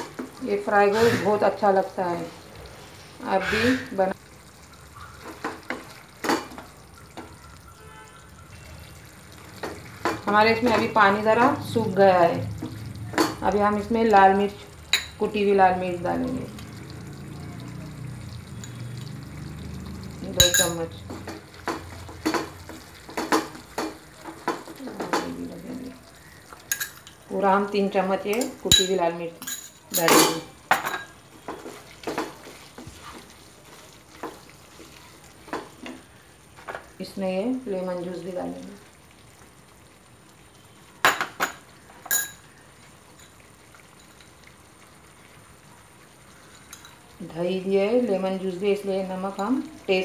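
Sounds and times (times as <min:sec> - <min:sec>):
wooden spatula scraping a pan: 0:00.0 - 0:04.1, 0:31.4 - 0:36.0
chicken sizzling: 0:00.0 - 0:50.0
ceramic plate clinking on frying pan: 0:41.0 - 0:42.4.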